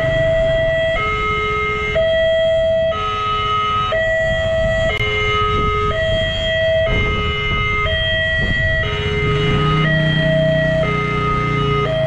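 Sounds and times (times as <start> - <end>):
two-tone level crossing alarm: 0.0 - 12.0.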